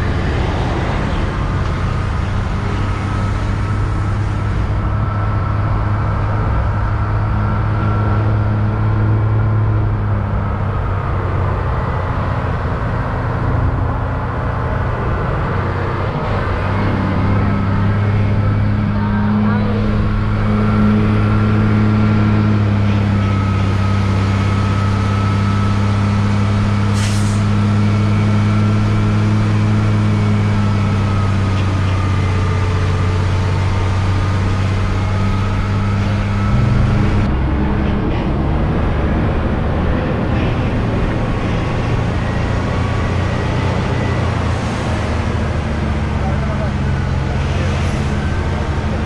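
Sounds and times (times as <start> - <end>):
truck diesel engine droning: 0.0 - 49.0.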